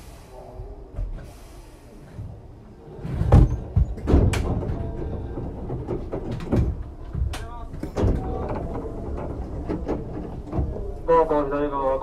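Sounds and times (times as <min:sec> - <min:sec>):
knocks and thumps of footfalls: 0:03.1 - 0:08.3.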